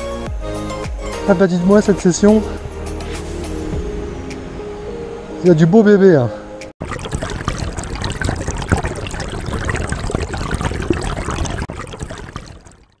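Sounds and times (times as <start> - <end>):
water trickling and splashing: 6.8 - 13.0.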